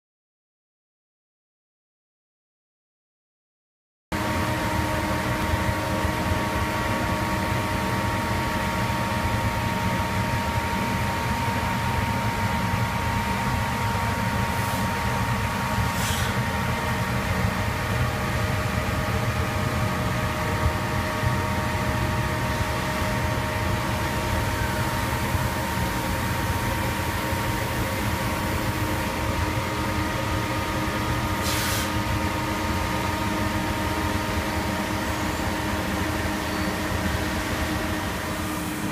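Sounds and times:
lathe humming and whining: 0:04.2 - 0:38.9
brief air hisses: 0:14.5 - 0:15.0, 0:15.8 - 0:16.4, 0:31.4 - 0:32.0.

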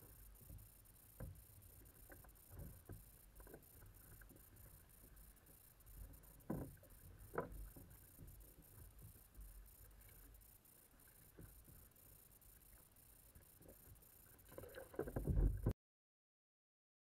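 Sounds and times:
kayak paddles splashing: 0:00.0 - 0:15.7
water and wind rumble: 0:14.4 - 0:15.7.

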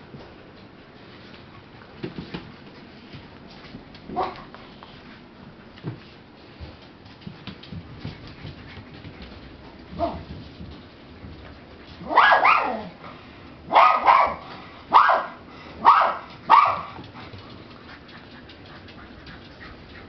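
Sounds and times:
dog yelping barks: 0:12.0 - 0:13.0, 0:13.7 - 0:17.0.

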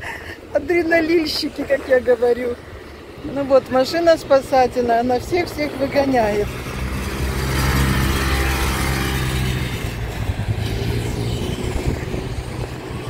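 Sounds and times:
beach buggy engine driving past: 0:00.8 - 0:13.0.

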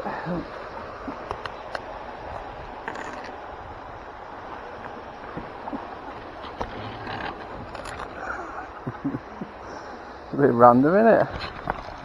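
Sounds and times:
water splashing and running off: 0:00.0 - 0:12.0.

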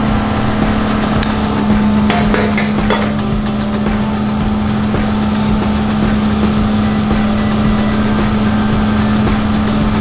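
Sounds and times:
cotton candy machine whirring: 0:00.0 - 0:10.0.

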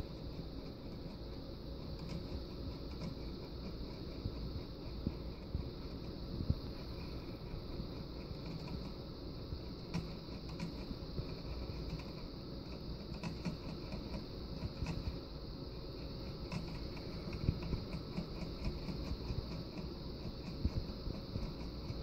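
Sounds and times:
steady low hum: 0:00.0 - 0:22.0
hamster licking water bottle tube: 0:16.0 - 0:22.0.

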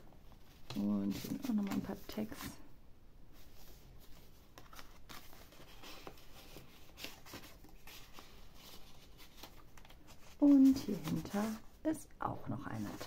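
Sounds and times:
paper and card rustling: 0:00.2 - 0:02.6, 0:03.4 - 0:13.0.

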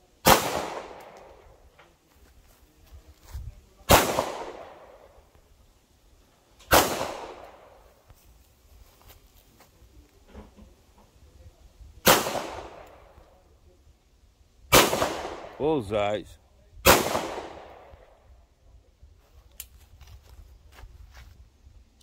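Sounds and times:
pistol shots with echo: 0:00.2 - 0:01.5, 0:03.9 - 0:05.2, 0:06.7 - 0:07.8, 0:12.0 - 0:13.2, 0:14.7 - 0:15.6, 0:16.8 - 0:18.0.

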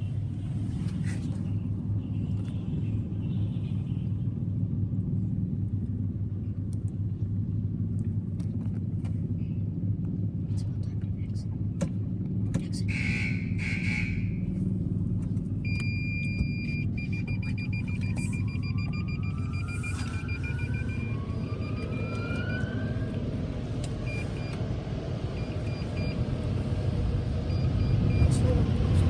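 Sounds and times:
car rumble inside cabin: 0:00.0 - 0:29.0
high electronic beeps: 0:15.6 - 0:22.7.

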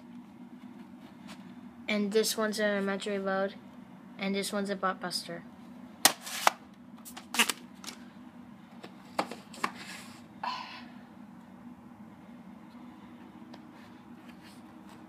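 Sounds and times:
faint steady hum: 0:00.0 - 0:15.0
tape cases clicking: 0:06.1 - 0:08.0.

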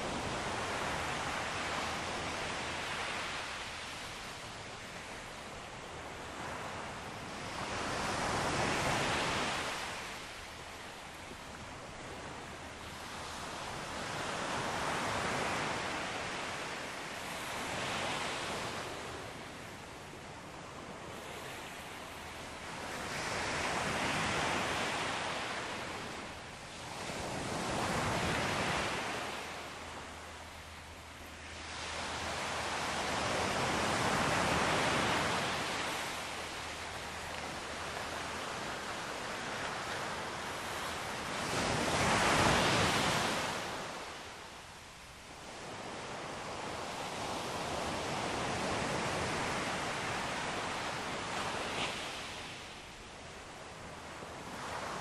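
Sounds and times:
ocean surf washing ashore: 0:00.0 - 0:55.0.

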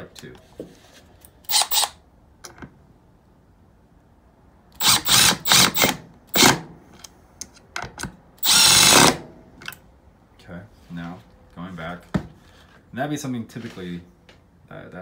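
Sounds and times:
impact driver driving screws: 0:01.4 - 0:02.0, 0:04.8 - 0:06.7, 0:08.4 - 0:09.2.

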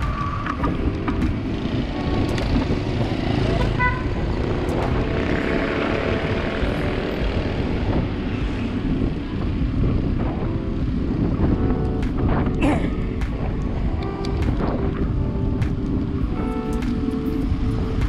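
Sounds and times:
motorcycle engines running: 0:00.0 - 0:18.0
wind rushing over microphone: 0:00.0 - 0:18.0.

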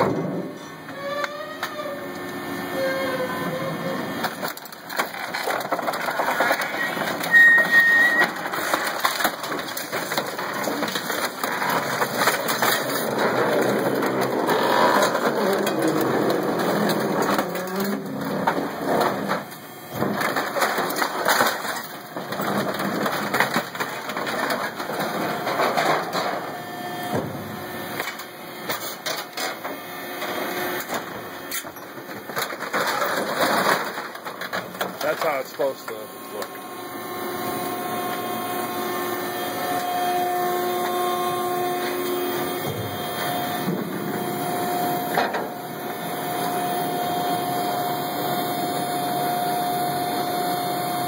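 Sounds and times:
compacted waste crunching and scraping: 0:00.0 - 0:49.1
high squeal: 0:06.8 - 0:08.4.

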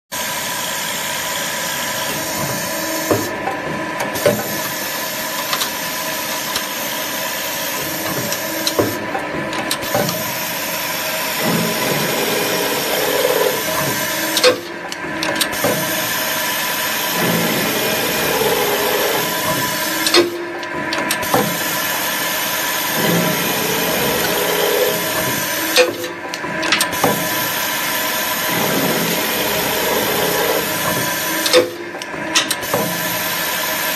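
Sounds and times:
machine motor hum: 0:00.4 - 0:33.9.

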